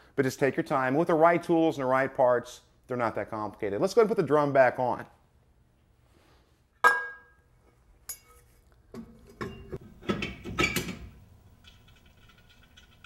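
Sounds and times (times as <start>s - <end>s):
metal clinks and scrapes: 8.1s - 8.7s.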